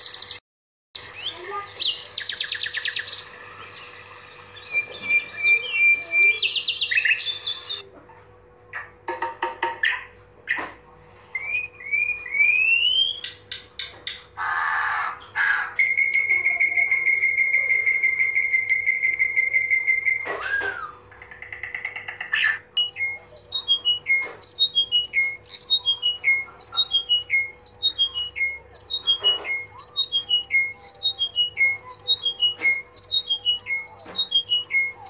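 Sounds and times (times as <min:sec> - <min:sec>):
whistled bird calls: 0:01.0 - 0:07.8, 0:11.4 - 0:13.5, 0:15.7 - 0:21.0, 0:22.7 - 0:35.0
harsh bird call: 0:01.1 - 0:07.8
long bird whistle: 0:11.4 - 0:13.3, 0:15.8 - 0:20.4.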